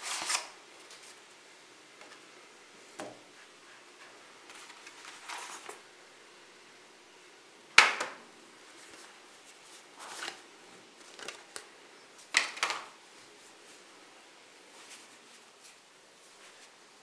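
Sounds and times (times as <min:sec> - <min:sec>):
card and fabric rustling: 0:04.5 - 0:05.8, 0:08.8 - 0:10.4, 0:11.0 - 0:12.9.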